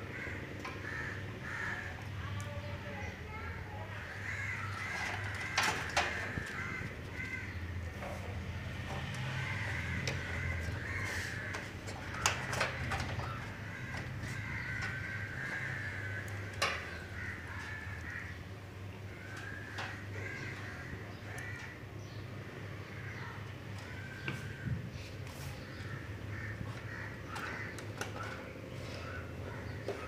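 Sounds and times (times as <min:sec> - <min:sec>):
crows cawing: 0:00.0 - 0:30.0
cables clicking against metal case: 0:04.6 - 0:07.4, 0:08.0 - 0:18.3, 0:19.2 - 0:20.6, 0:26.6 - 0:30.0.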